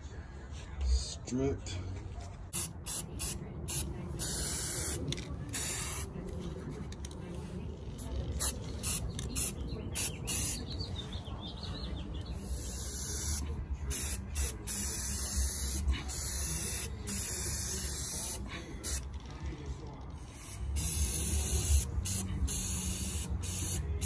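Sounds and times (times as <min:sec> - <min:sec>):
spray paint can hissing: 0:02.5 - 0:06.1, 0:08.4 - 0:10.6, 0:12.4 - 0:19.1, 0:20.4 - 0:24.0.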